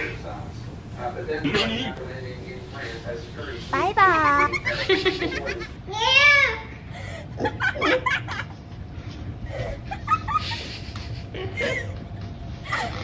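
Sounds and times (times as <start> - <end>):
steady low hum: 0.0 - 13.0
person laughing softly: 9.5 - 13.0.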